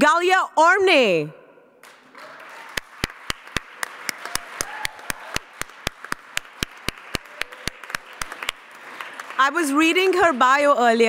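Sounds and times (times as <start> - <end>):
audience applauding: 1.8 - 10.7
loud even clapping: 1.8 - 10.8.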